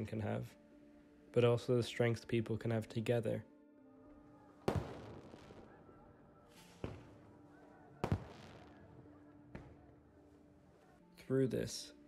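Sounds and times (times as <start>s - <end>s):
fireworks bangs with crackling hiss: 4.7s - 5.7s, 6.6s - 7.3s, 8.0s - 8.8s.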